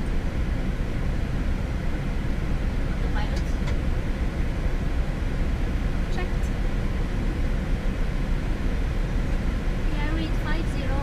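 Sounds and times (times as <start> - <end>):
aircraft cockpit rumble: 0.0 - 11.0.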